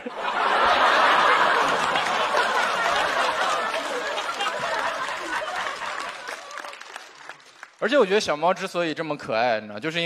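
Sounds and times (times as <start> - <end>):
studio audience laughing: 0.0 - 7.0.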